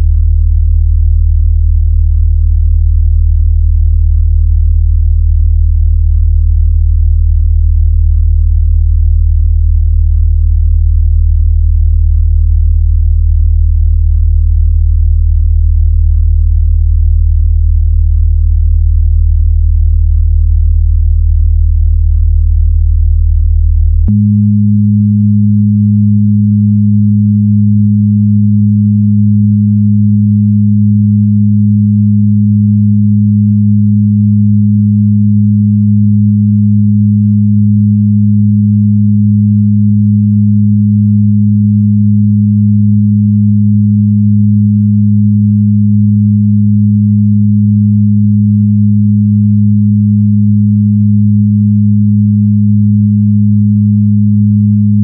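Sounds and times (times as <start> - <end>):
higher sine tone: 0.0 - 55.0
low sine tone: 0.0 - 55.0.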